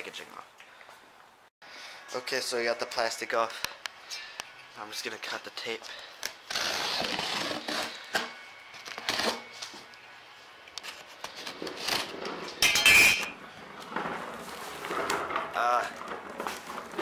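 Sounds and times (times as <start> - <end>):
knife slitting packing tape: 6.5 - 7.9
cardboard rustling: 13.8 - 17.0.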